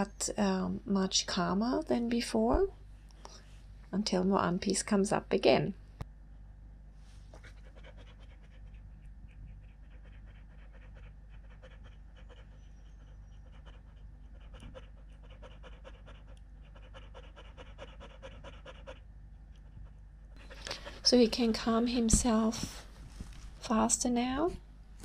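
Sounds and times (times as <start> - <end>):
dog panting: 7.3 - 21.8.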